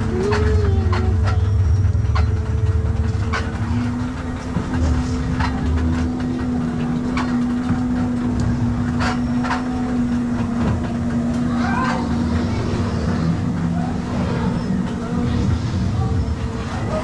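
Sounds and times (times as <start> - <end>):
ride car motor hum: 0.0 - 17.0.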